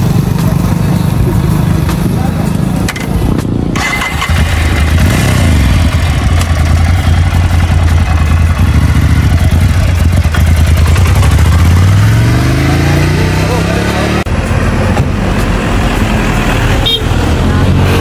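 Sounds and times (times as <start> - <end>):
motorcycle engine idling: 3.8 - 11.6.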